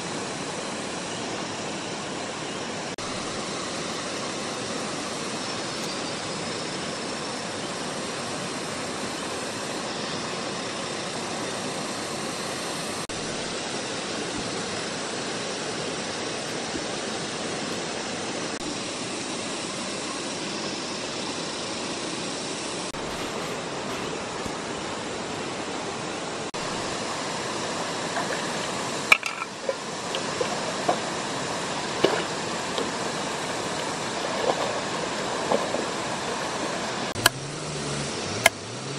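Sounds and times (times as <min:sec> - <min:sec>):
river running over stones: 0:00.0 - 0:38.9
pot splashing in water: 0:27.9 - 0:37.4.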